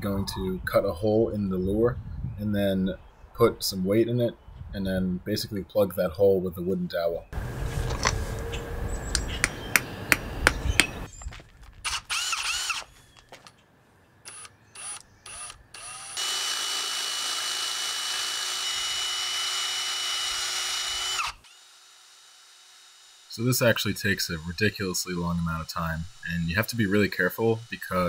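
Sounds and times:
cordless drill boring wood: 11.9 - 12.9, 14.3 - 28.0.

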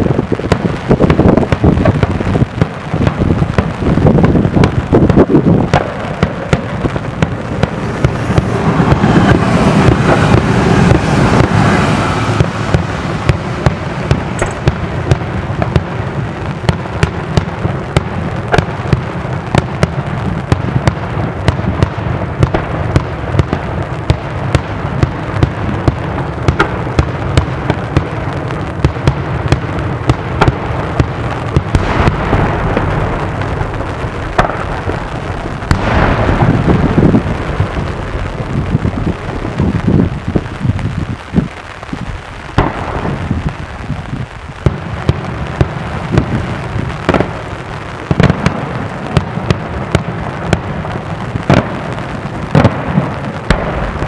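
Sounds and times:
continuous rumble: 0.0 - 54.0
fireworks shells bursting: 0.1 - 15.8, 31.5 - 45.2.

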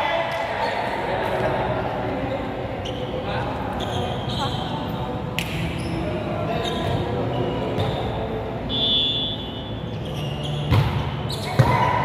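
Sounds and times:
murmur of players' voices: 0.0 - 12.0
shoe squeak: 2.8 - 5.0, 5.7 - 11.6
volleyball struck with slaps: 5.4 - 5.7, 10.7 - 12.0.

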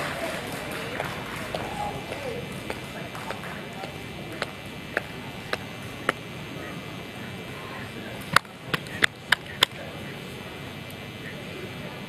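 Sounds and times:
outdoor background noise: 0.0 - 12.0
sharp clicks: 8.2 - 9.8.

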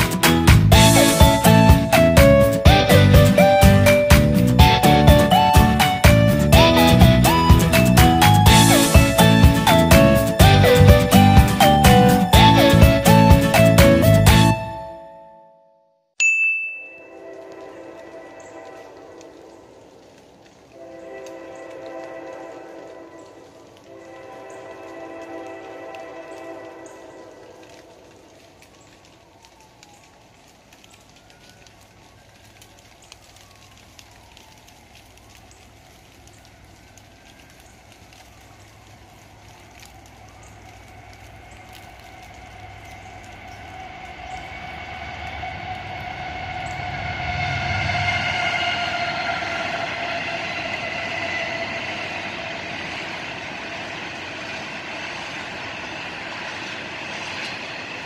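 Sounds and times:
rain pattering: 0.0 - 14.8, 17.0 - 58.0
locomotive engine rumble: 0.0 - 15.0, 17.1 - 58.0
locomotive air horn: 0.0 - 15.1, 17.0 - 28.0, 40.1 - 53.1.

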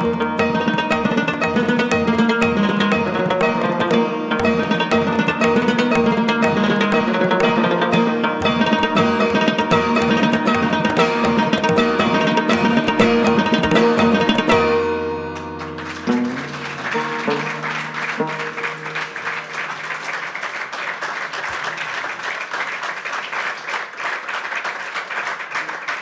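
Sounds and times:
plucked lute chord ringing: 0.0 - 20.2
audience applauding: 15.4 - 26.0.

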